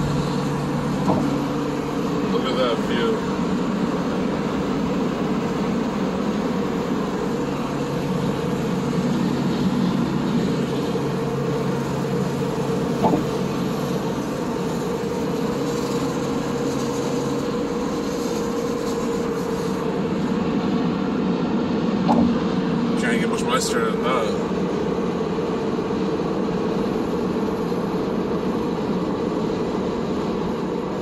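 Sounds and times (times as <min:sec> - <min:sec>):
tyre and road noise: 0:00.0 - 0:23.4
car engine hum: 0:00.0 - 0:31.0.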